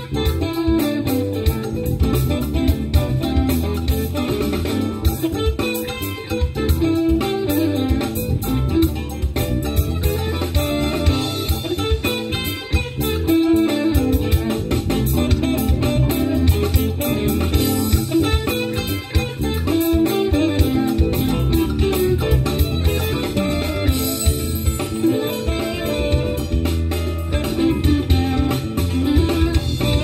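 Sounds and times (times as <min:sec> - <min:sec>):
bass guitar: 0:00.0 - 0:30.0
drum kit: 0:00.0 - 0:30.0
electric guitar: 0:00.0 - 0:30.0
funk jazz band playing: 0:00.0 - 0:30.0.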